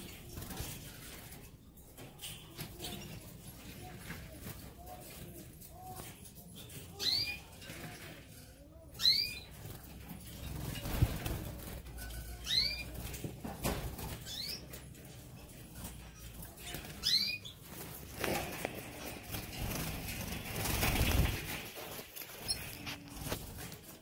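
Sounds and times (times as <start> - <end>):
birds flapping wings: 9.5 - 12.0, 15.8 - 24.0.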